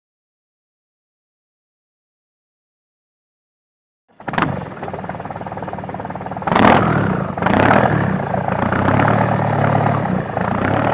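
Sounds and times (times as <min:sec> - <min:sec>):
engine starting and revving: 0:04.2 - 0:10.9.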